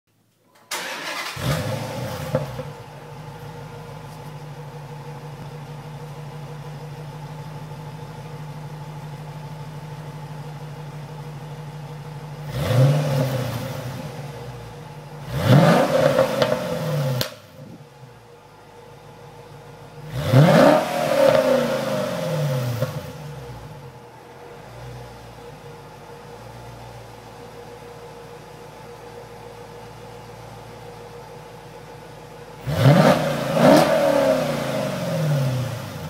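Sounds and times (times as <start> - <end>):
car engine idling: 0.7 - 36.0
car engine revving: 0.8 - 3.2, 12.4 - 17.6, 19.9 - 25.9, 32.6 - 36.0.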